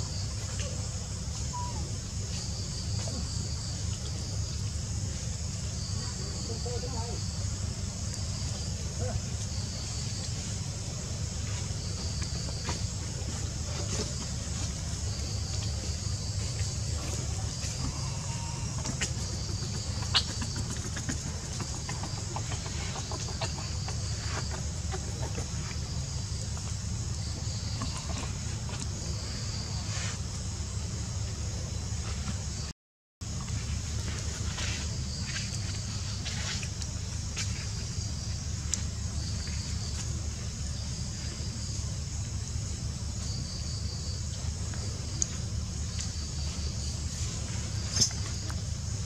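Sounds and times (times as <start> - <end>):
insects chirring: 0.0 - 49.0
low steady rumble: 0.0 - 49.0
steady high hiss: 0.0 - 49.0
animal chirps and clucking calls: 1.4 - 2.0, 17.0 - 26.0.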